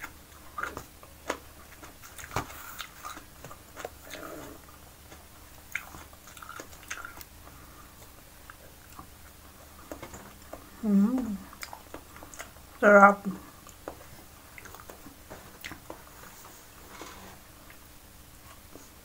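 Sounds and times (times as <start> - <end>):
small clicks and smacks: 0.0 - 4.2, 5.1 - 12.6, 13.6 - 16.3.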